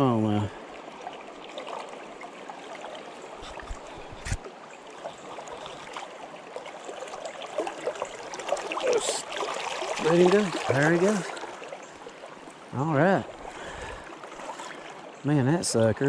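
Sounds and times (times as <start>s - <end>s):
river trickling: 0.0s - 16.0s.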